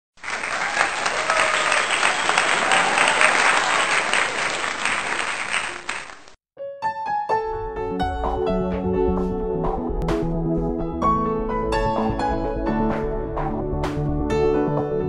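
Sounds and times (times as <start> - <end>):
audience applauding: 0.1 - 6.4.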